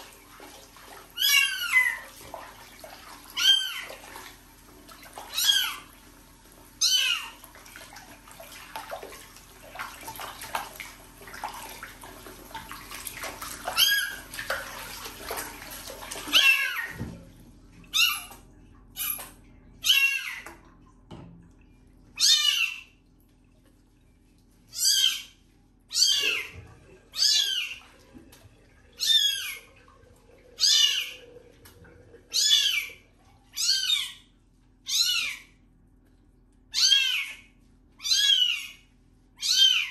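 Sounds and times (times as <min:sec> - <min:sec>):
tap water running into sink: 0:00.0 - 0:19.4, 0:26.2 - 0:33.3.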